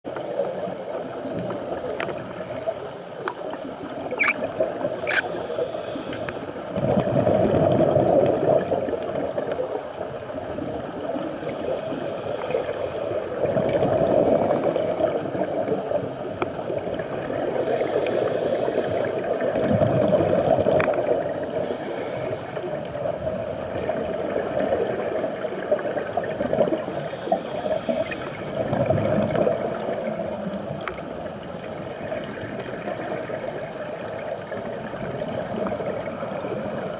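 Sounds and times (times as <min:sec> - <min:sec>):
underwater bubbling and gurgling: 0:00.0 - 0:36.9
faint clicks: 0:06.1 - 0:06.4.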